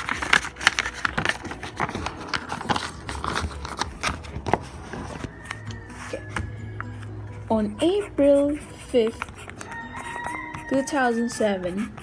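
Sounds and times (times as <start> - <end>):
paper pages rustling and flipping: 0.0 - 7.1.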